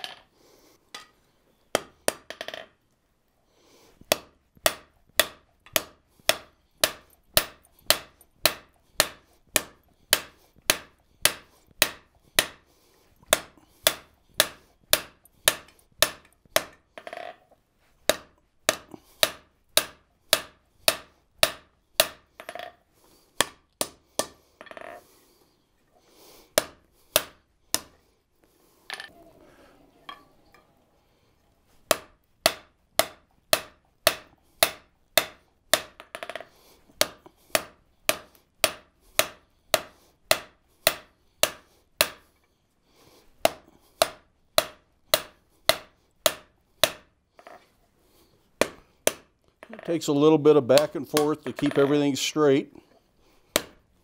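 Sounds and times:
hammer striking steel on anvil: 0:04.1 - 0:12.6, 0:13.3 - 0:16.8, 0:18.1 - 0:22.6, 0:26.6 - 0:27.9, 0:31.9 - 0:36.4, 0:37.0 - 0:42.2, 0:43.4 - 0:47.1.

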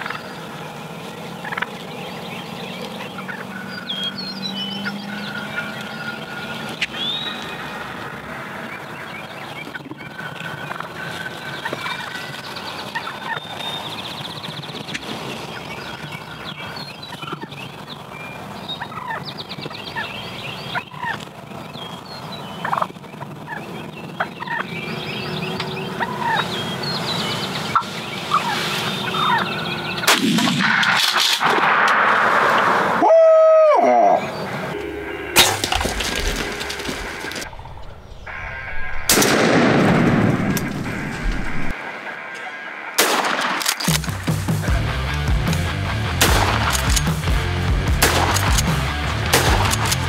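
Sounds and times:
turkeys gobbling: 0:00.0 - 0:00.2, 0:01.0 - 0:01.9, 0:02.8 - 0:04.0, 0:08.8 - 0:13.7, 0:17.1 - 0:17.6, 0:18.8 - 0:19.3, 0:20.7 - 0:21.3, 0:22.6 - 0:24.8, 0:26.0 - 0:26.6, 0:27.6 - 0:31.3
steady low hum: 0:34.2 - 0:41.8.

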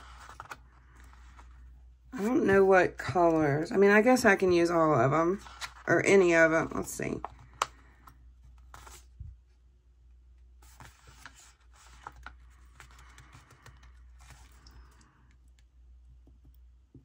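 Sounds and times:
paper rustling: 0:00.0 - 0:01.7, 0:05.3 - 0:09.4, 0:10.6 - 0:14.7
low steady hum: 0:00.0 - 0:17.0.

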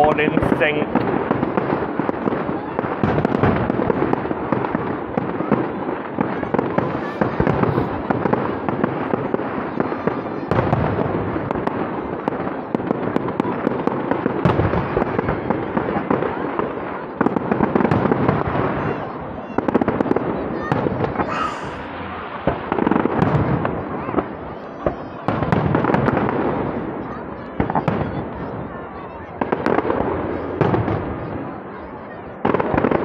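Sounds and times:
fireworks crackling: 0:00.0 - 0:33.0
loud firework bangs: 0:00.0 - 0:33.0.

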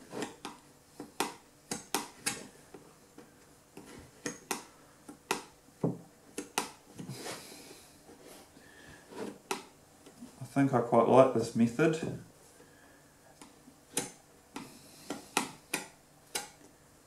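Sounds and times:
putty knife tapping and scraping: 0:13.4 - 0:16.7.

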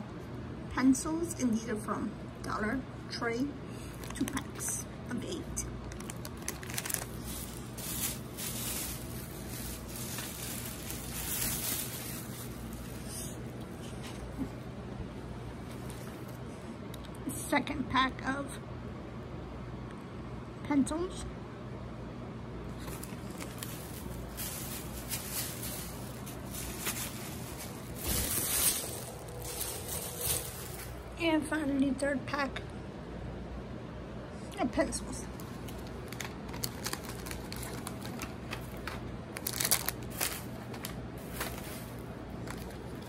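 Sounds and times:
steady low hum: 0:00.0 - 0:43.0
plastic packaging crinkling: 0:03.8 - 0:04.8, 0:05.7 - 0:13.4, 0:22.8 - 0:31.1, 0:35.4 - 0:43.0
plastic wrapping rustling: 0:03.8 - 0:04.8, 0:05.8 - 0:14.2, 0:22.8 - 0:31.1, 0:35.4 - 0:43.0.

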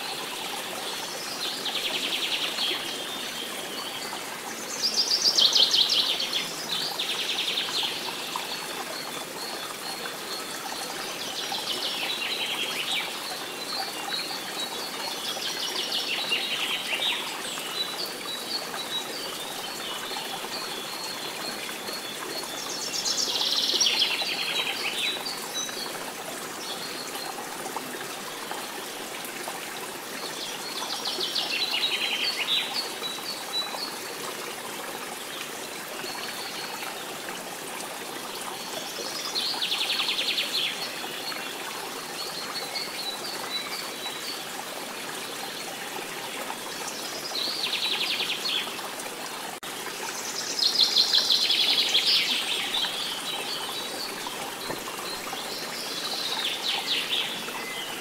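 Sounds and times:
stream running: 0:00.0 - 0:58.0
songbirds singing: 0:49.9 - 0:58.0.

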